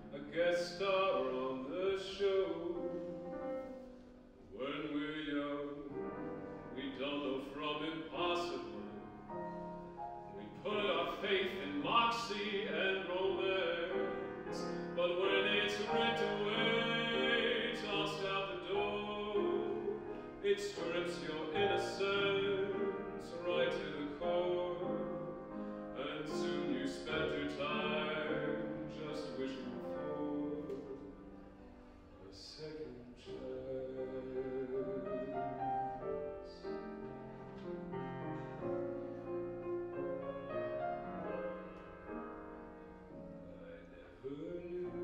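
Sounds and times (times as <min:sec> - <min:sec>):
man singing with vibrato: 0:00.0 - 0:03.4, 0:04.5 - 0:09.4, 0:10.2 - 0:31.3, 0:32.2 - 0:36.9, 0:43.6 - 0:45.0
grand piano accompaniment: 0:00.0 - 0:45.0.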